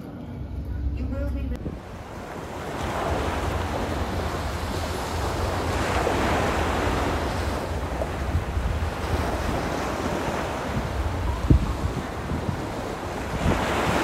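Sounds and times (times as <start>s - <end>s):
low rumble: 0.0s - 9.4s
wind buffeting microphone: 0.7s - 14.0s
water rushing past: 1.6s - 14.0s.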